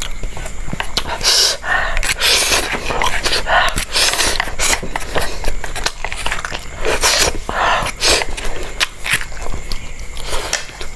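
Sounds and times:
chewing: 0.0 - 10.9
hissy breaths and sucking: 0.8 - 8.8.

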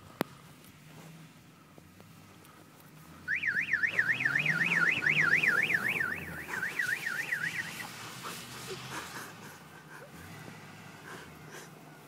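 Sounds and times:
police siren yelping: 3.3 - 8.1.

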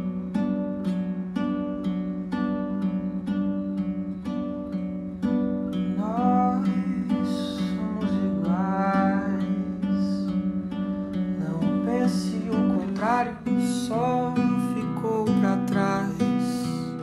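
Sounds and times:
acoustic guitar chords: 0.0 - 17.0
person singing: 5.8 - 10.7, 11.3 - 17.0.

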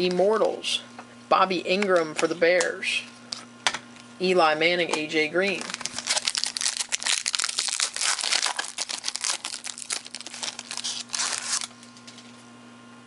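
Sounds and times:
foil wrapper crinkling and tearing: 5.5 - 12.2.

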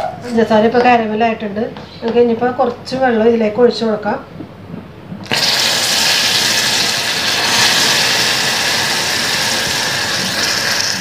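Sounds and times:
caramel hissing and sizzling: 5.2 - 11.0.

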